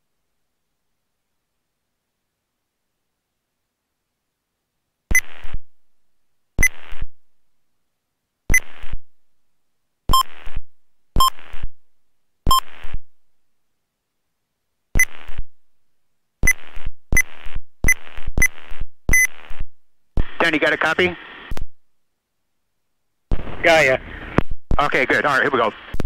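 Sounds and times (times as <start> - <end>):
radio clicks: 20.2 - 21.7
radio squelch hiss: 20.2 - 21.7, 23.3 - 26.0.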